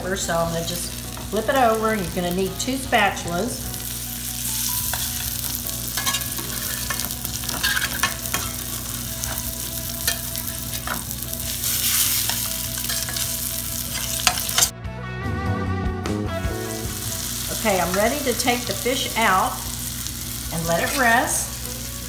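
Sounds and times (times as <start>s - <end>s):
fish sizzling in hot oil: 0.0s - 14.7s, 16.8s - 22.0s
metal spatulas scraping pan: 5.9s - 9.4s, 10.0s - 14.7s, 20.7s - 21.2s.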